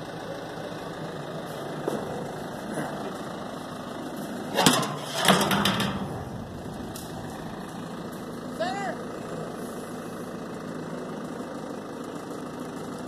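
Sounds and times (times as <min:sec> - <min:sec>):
tractor engine idling: 0:00.0 - 0:13.0
loud knocks and rattles: 0:04.6 - 0:07.2.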